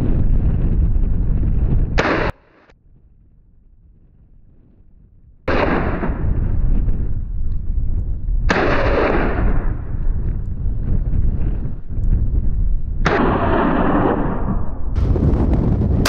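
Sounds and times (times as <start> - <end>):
low rumble: 0.0 - 16.0
gunshots with rolling echo: 2.0 - 2.7, 5.5 - 7.2, 8.5 - 10.3, 12.9 - 16.0.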